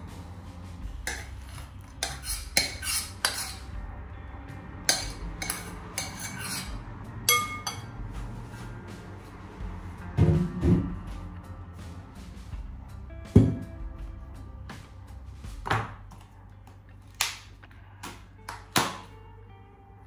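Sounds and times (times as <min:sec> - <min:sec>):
metal spoon scraping a pot: 0:01.0 - 0:03.7, 0:04.9 - 0:08.0.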